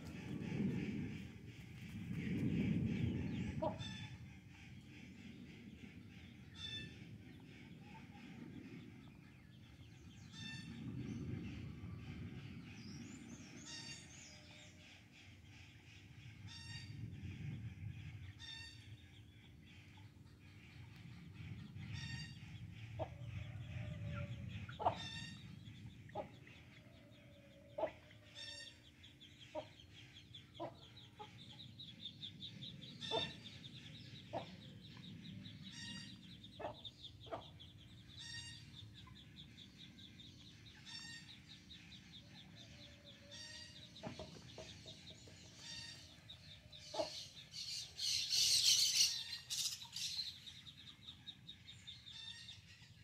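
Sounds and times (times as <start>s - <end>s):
chickens clucking: 43.9s - 45.6s, 46.9s - 47.3s.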